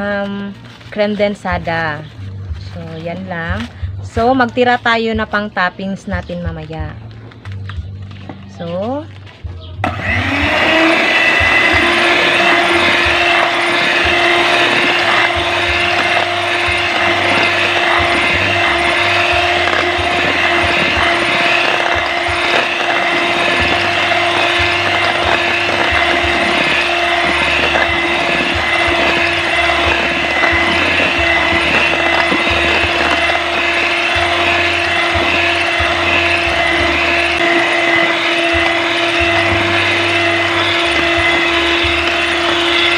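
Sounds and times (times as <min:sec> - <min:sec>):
electric hand mixer running: 0:09.8 - 0:42.9.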